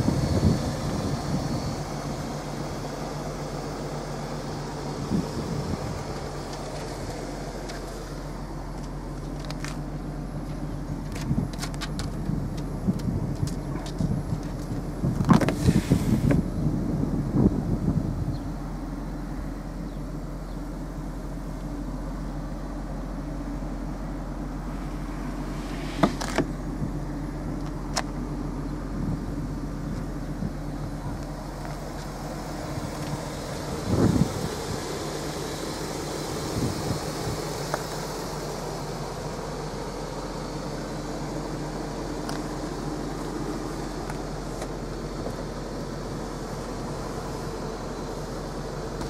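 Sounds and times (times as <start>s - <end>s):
car engine idling: 0.0s - 49.0s.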